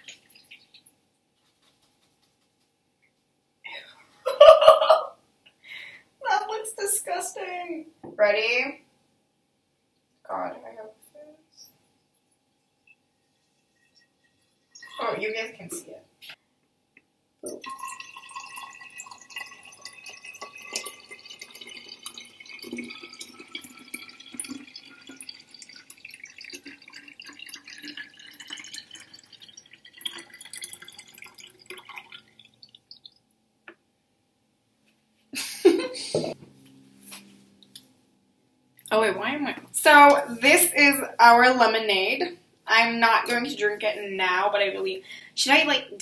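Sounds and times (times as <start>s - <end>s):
liquid pouring into bottle: 13.3s - 15.2s, 17.5s - 33.2s.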